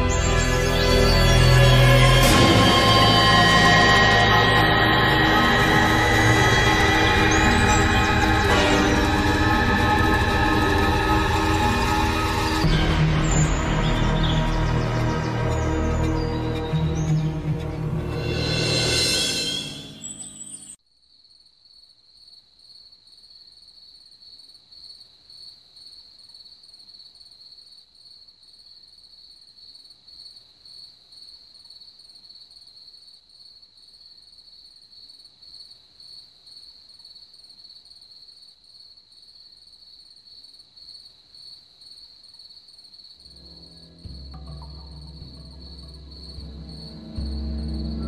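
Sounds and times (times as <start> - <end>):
crickets trilling: 2.7 - 28.2, 28.8 - 48.0
low rumble: 43.4 - 48.0.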